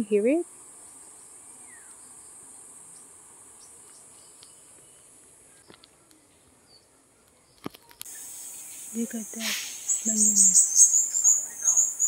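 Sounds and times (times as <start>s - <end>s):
high-pitched insect drone: 8.1s - 12.0s.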